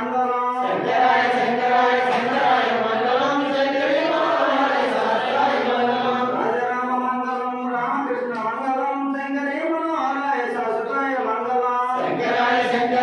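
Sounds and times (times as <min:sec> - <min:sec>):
voices chanting a hymn: 0:00.0 - 0:08.0, 0:11.8 - 0:13.0.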